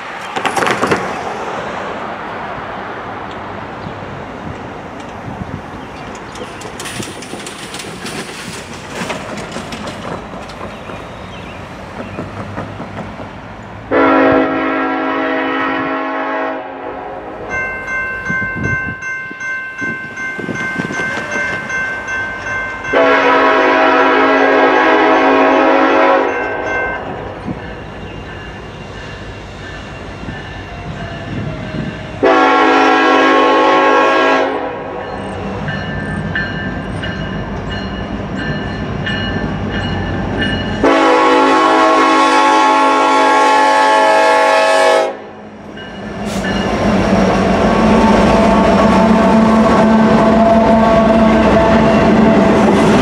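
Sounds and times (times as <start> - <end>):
road and vehicle noise: 0.0 - 53.0
locomotive air horn blasts: 13.9 - 17.5, 22.9 - 26.8, 32.2 - 35.0, 40.8 - 45.3, 47.6 - 52.6
crossing signal ringing: 17.4 - 33.2.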